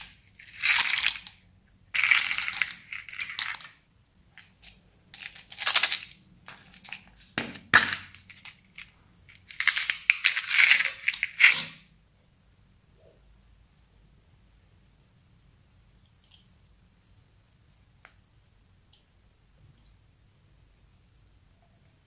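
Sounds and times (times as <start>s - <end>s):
plastic beads rattling in a box: 0.0s - 1.4s, 2.0s - 3.8s, 4.4s - 11.8s.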